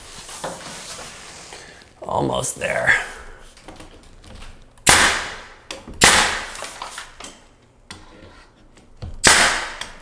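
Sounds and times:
nail gun firing: 4.8s - 6.7s, 9.2s - 10.0s.

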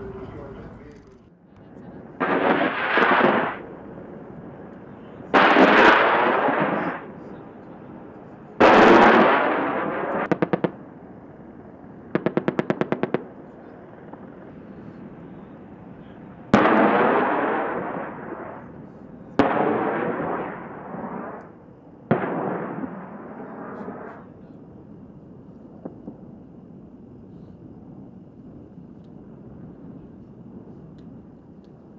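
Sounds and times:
heavy blasts: 2.2s - 3.7s.

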